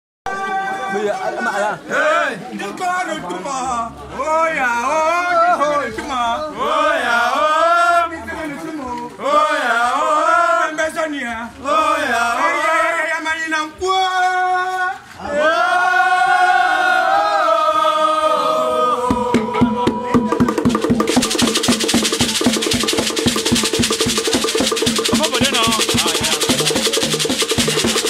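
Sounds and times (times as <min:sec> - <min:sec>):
quick percussion strikes: 0:19.1 - 0:28.0.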